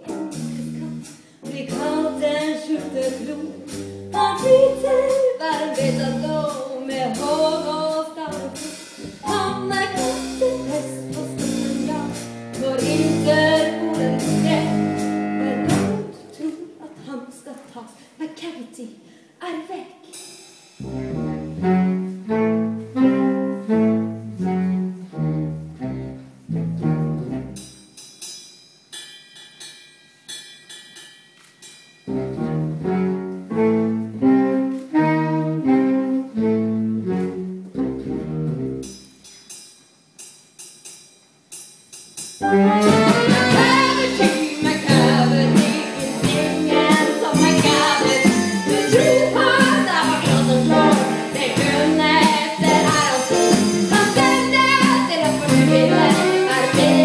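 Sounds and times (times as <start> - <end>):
live band playing dance music: 8.5 - 16.3, 42.4 - 57.0.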